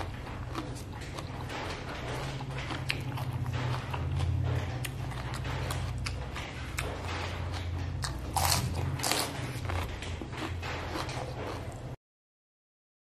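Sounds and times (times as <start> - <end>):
wet mouth clicks and chewing: 0.0 - 12.0
crunch of cucumber bite: 8.0 - 9.9.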